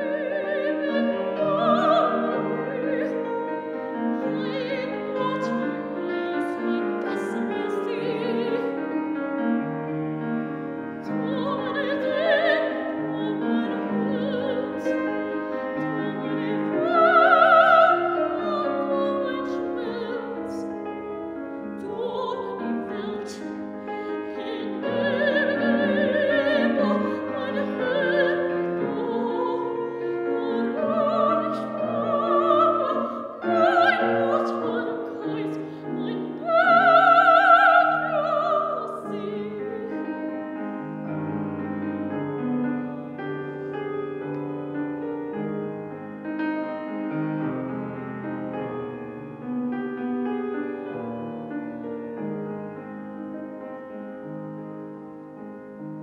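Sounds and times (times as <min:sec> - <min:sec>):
woman singing opera: 0:00.0 - 0:09.6, 0:10.2 - 0:40.8
grand piano: 0:00.0 - 0:56.0.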